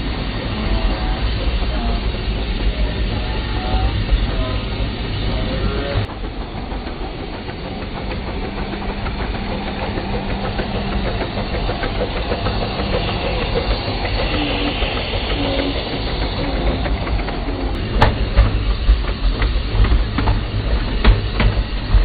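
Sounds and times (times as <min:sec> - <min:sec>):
steam hissing: 0:00.0 - 0:22.0
clicks of running gear on rails: 0:07.4 - 0:22.0.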